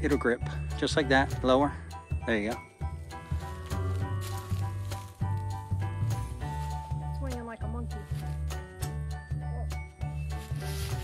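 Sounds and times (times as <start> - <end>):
music with held notes and beat: 0.0 - 11.0.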